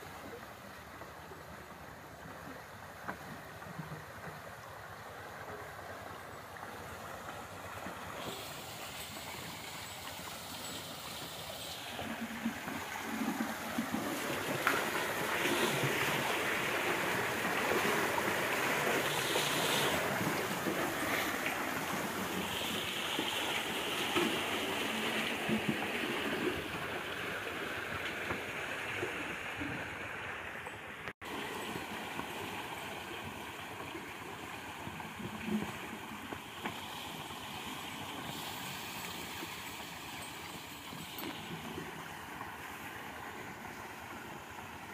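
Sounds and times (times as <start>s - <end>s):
water pouring into a trough: 8.1s - 27.2s.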